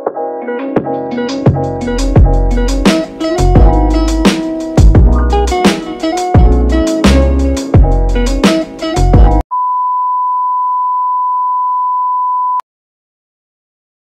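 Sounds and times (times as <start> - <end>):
intro music with heavy beat: 0.8 - 9.4.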